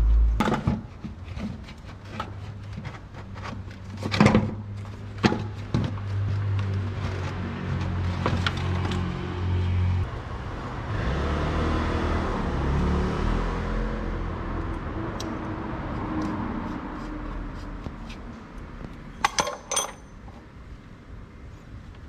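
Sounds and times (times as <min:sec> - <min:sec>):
metallic clinks: 0:19.2 - 0:20.3.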